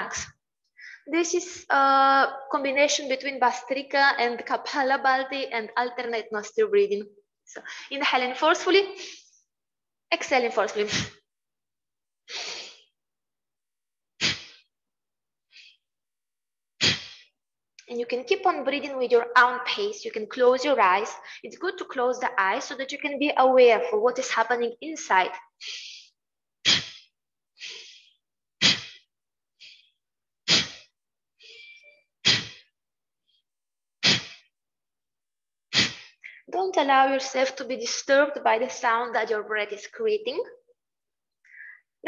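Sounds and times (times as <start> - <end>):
forceful nasal breaths: 12.3 - 12.9, 14.2 - 14.7, 16.8 - 17.4, 25.5 - 32.8, 34.0 - 34.6, 35.7 - 36.4
sniffed inhales: 12.3 - 12.9, 14.2 - 14.7, 16.8 - 17.3, 25.6 - 29.9, 35.7 - 36.5.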